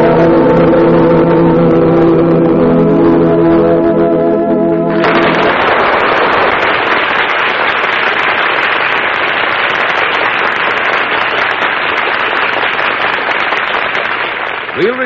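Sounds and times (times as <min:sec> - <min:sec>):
audience applauding: 0:04.9 - 0:15.0.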